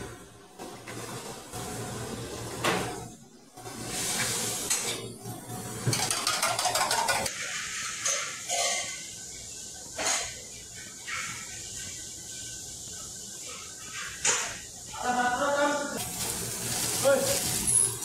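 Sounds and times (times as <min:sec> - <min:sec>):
gas burner hiss: 0:00.0 - 0:06.0, 0:15.9 - 0:18.0
metal pans clattering: 0:05.8 - 0:09.0.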